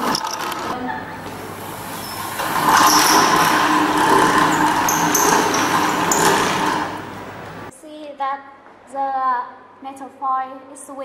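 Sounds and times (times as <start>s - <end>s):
hand-cranked machine whirring: 0.0s - 7.7s.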